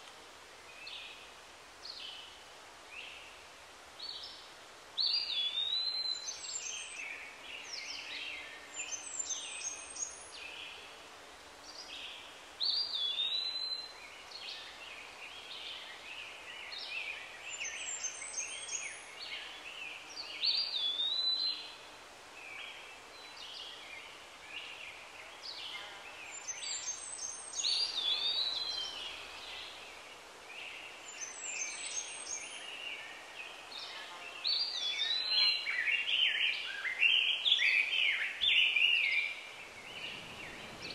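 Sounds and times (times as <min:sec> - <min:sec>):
faint steady background hiss: 0:00.0 - 0:40.9
birds singing: 0:04.0 - 0:10.9, 0:11.6 - 0:40.9.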